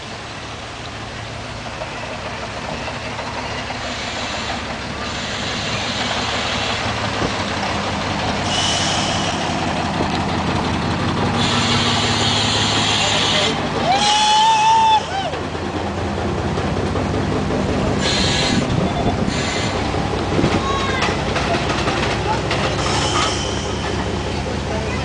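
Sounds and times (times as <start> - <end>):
diesel train engine: 0.0 - 25.0
air brakes hissing: 3.8 - 6.8, 8.4 - 9.8, 11.4 - 14.3, 22.8 - 24.1.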